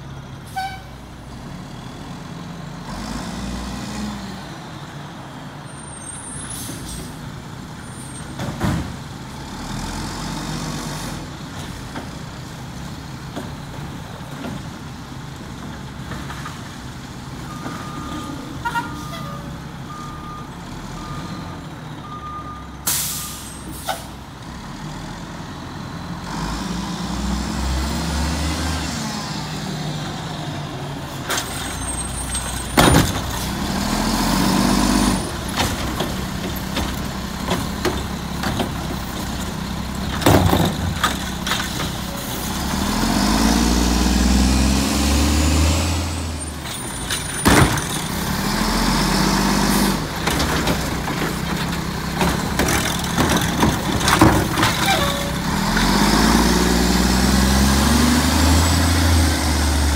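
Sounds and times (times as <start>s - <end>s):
reversing beeps: 17.5s - 23.4s
air brake hisses: 22.9s - 24.1s.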